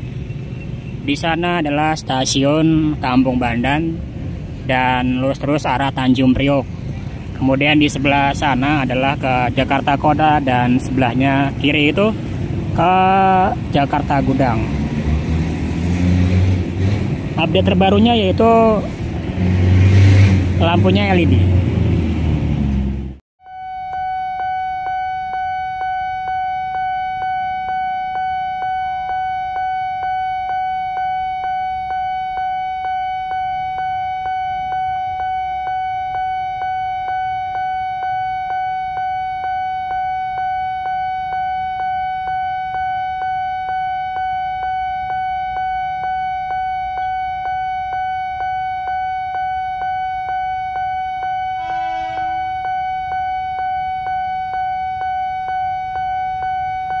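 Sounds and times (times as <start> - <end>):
level crossing bell alarm: 23.4 - 57.0.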